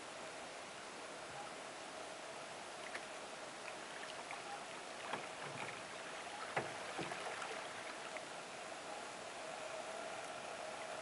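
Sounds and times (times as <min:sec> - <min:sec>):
steady outdoor hiss: 0:00.0 - 0:11.0
soft water splashes: 0:02.6 - 0:08.7.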